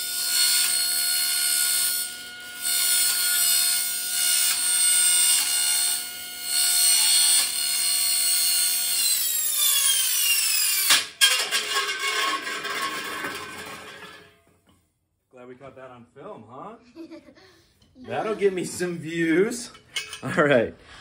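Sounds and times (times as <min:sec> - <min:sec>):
saw blade whining on metal: 0:00.0 - 0:14.3.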